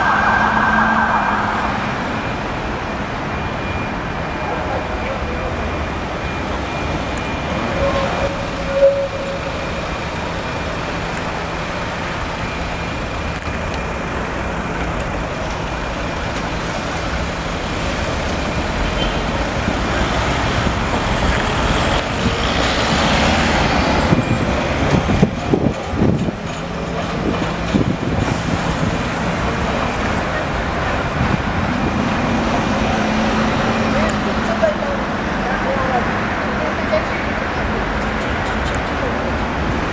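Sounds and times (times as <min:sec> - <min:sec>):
city street traffic: 0:00.0 - 0:39.9
tram rumbling past: 0:00.0 - 0:39.9
short loud tone: 0:07.2 - 0:09.8
tram knocking: 0:23.6 - 0:32.9.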